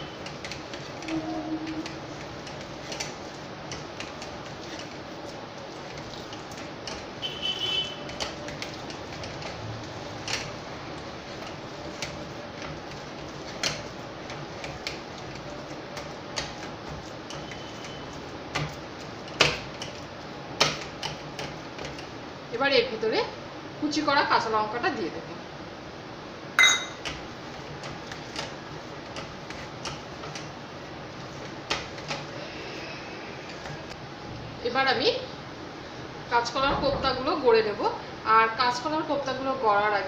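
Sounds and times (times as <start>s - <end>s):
fingers tapping steel bowl: 26.6s - 27.2s.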